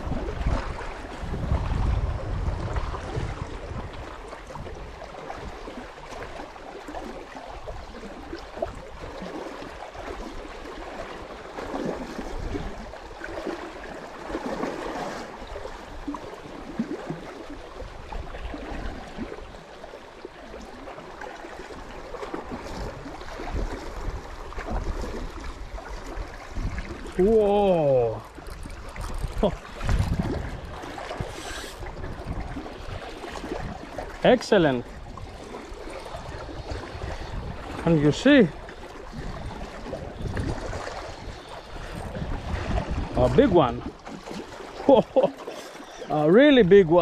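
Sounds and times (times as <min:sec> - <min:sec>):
sea water splashing on rocks: 0:20.6 - 0:47.0.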